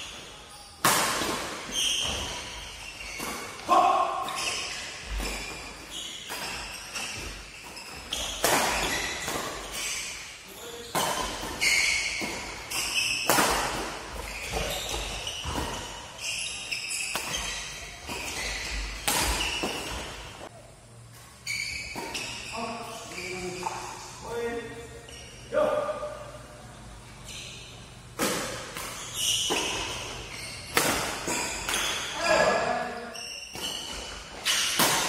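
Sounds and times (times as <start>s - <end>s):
rackets striking shuttlecock: 30.7s - 32.2s.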